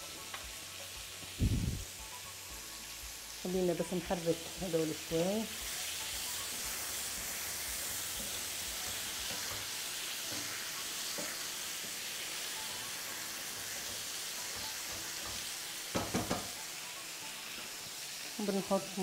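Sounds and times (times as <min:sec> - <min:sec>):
courgette slices sizzling in oil: 0:00.0 - 0:19.0.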